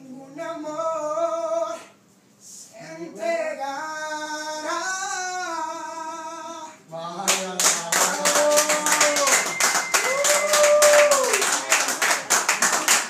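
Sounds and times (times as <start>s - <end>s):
people clapping: 7.3s - 13.0s.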